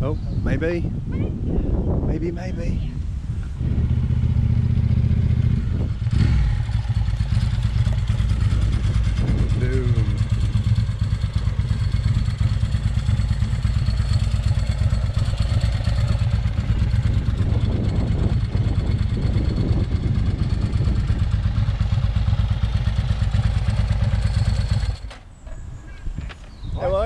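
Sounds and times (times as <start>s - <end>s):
motorcycle engine idling: 3.5s - 25.2s.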